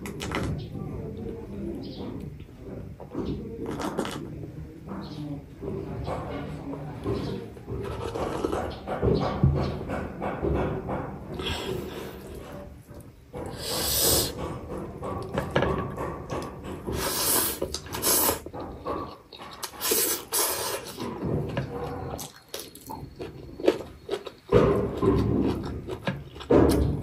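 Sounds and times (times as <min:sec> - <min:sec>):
wet chewing and lip smacking: 0:16.4 - 0:27.0
sucking slurps: 0:17.0 - 0:18.6, 0:19.6 - 0:21.0.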